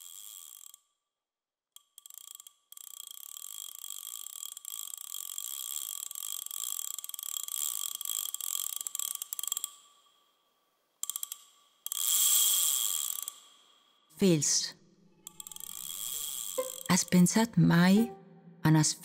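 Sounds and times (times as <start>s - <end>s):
ratchet mechanism clicking: 0.0s - 0.9s, 1.8s - 10.0s, 11.0s - 13.6s, 15.2s - 17.0s.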